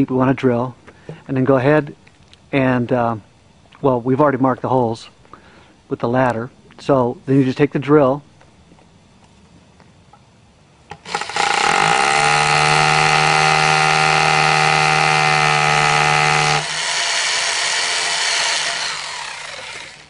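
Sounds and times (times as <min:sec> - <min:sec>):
hammer drill boring into concrete: 0:10.9 - 0:20.0.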